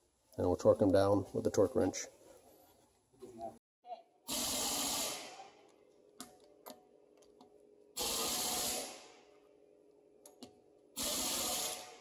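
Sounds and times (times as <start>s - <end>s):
air impact wrench bursts: 4.3s - 5.5s, 8.0s - 9.2s, 11.0s - 12.0s.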